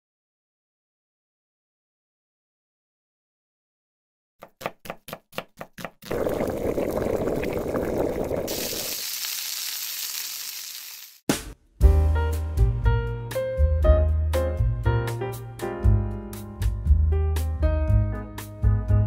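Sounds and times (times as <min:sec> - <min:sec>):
knife chopping on cutting board: 0:04.4 - 0:06.0
food sizzling in a pan: 0:06.1 - 0:11.2.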